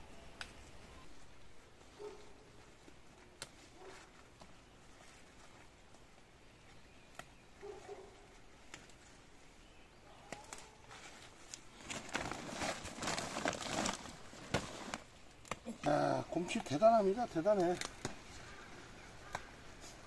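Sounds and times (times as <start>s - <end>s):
leaf stalks snapping: 2.8s - 4.6s, 7.0s - 7.6s, 8.4s - 9.1s, 10.1s - 16.0s, 17.4s - 20.0s
plastic sack rustling: 10.6s - 15.9s.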